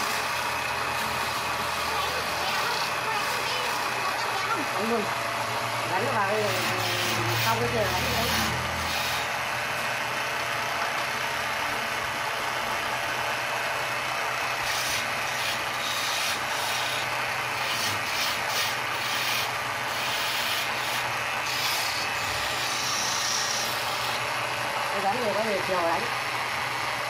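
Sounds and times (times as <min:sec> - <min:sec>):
turning tool scraping wood: 0:00.0 - 0:09.9, 0:14.6 - 0:25.7
lathe motor hum: 0:00.0 - 0:27.0.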